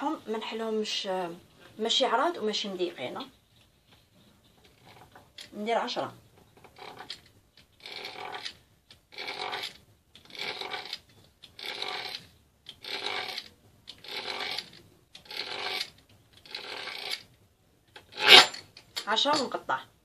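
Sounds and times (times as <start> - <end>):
pastry wheel rolling across dough: 4.1 - 17.3.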